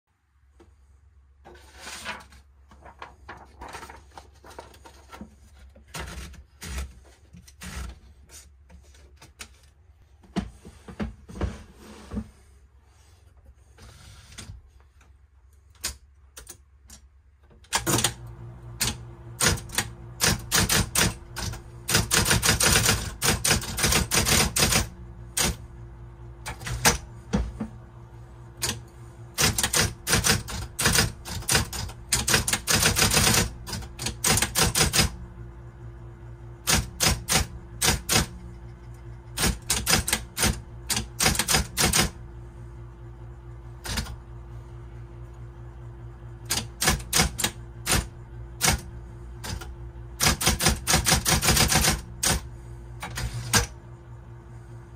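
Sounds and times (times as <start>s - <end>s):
electric typewriter hum: 17.6s - 54.7s
typewriter key strikes: 36.6s - 38.4s, 39.4s - 42.1s, 46.5s - 48.8s, 50.2s - 52.4s.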